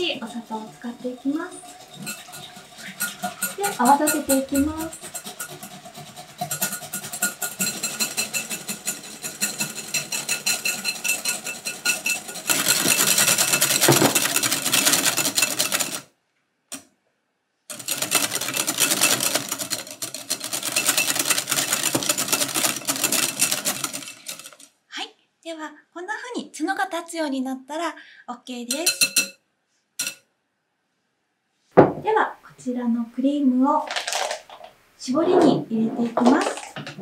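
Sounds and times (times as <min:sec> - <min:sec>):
whisk rattling in glass bowl: 0:00.0 - 0:16.1, 0:17.7 - 0:24.7, 0:28.7 - 0:29.4, 0:30.0 - 0:30.2, 0:36.0 - 0:37.0.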